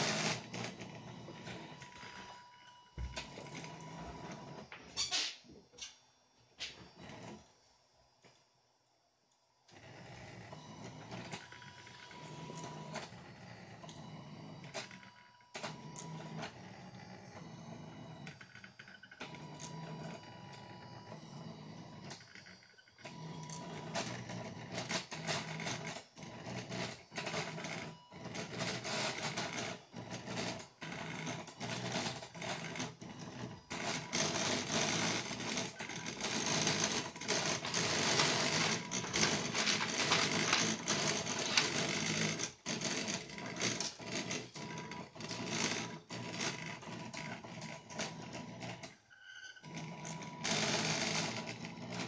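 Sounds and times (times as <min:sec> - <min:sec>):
printer motors buzzing and whirring: 0:00.0 - 0:07.5, 0:09.6 - 0:52.0.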